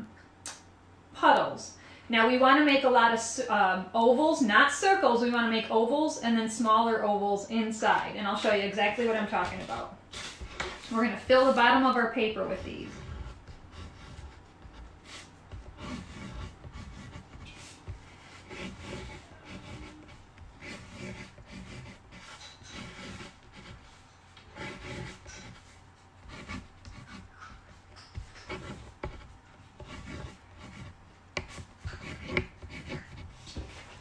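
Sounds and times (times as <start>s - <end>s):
crayon scratching on paper: 12.4s - 33.8s.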